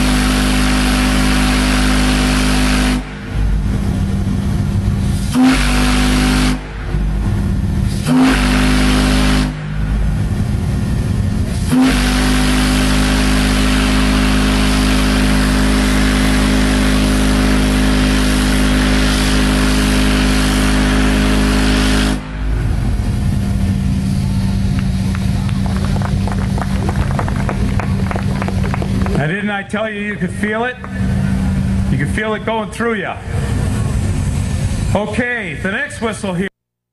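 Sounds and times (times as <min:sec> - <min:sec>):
deep steam whistle blasts: 0:00.0 - 0:03.7, 0:05.0 - 0:25.0
steady rumble: 0:00.0 - 0:36.5.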